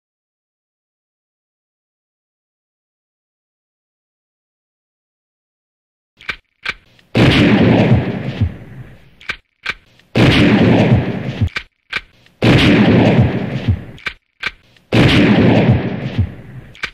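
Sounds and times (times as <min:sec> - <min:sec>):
quick clicks: 0:06.2 - 0:07.2, 0:08.3 - 0:10.3, 0:11.2 - 0:12.5, 0:13.5 - 0:15.0, 0:16.0 - 0:16.9
gunshot with echo: 0:06.7 - 0:09.1, 0:09.7 - 0:16.9.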